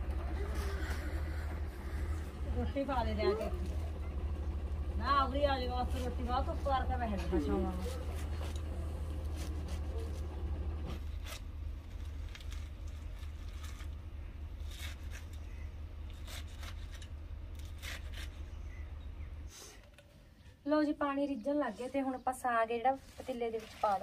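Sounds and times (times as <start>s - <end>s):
steady low hum: 0.0s - 23.2s
knife slicing leafy greens: 7.2s - 10.3s, 14.5s - 18.6s.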